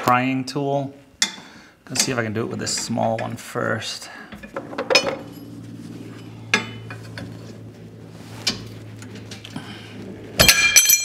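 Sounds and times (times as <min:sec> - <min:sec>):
steady low hum: 0:00.8 - 0:11.0
metal hand tools clattering: 0:04.4 - 0:05.6.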